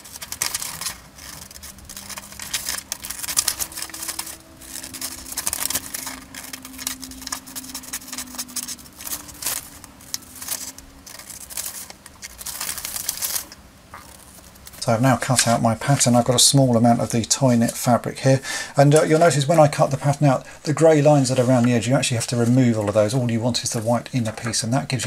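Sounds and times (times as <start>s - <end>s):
scissors snipping paper: 0.0s - 14.8s
paper rustling: 0.0s - 25.0s.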